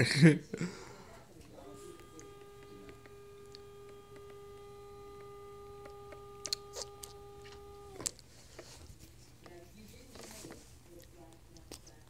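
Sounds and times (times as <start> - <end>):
electric motor whining: 1.5 - 8.2
sharp clicks: 1.9 - 8.2.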